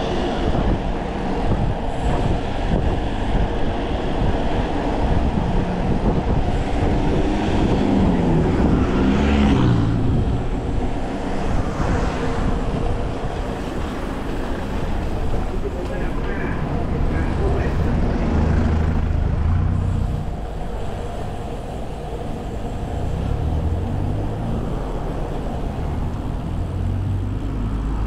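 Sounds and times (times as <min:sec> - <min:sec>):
passing vehicle hum: 0:00.0 - 0:28.0
wind rush and road noise: 0:00.0 - 0:28.0.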